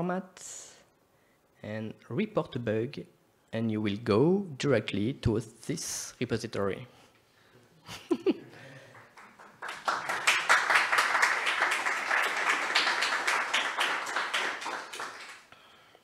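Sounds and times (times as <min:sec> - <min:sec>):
audience applauding: 0:08.8 - 0:15.5.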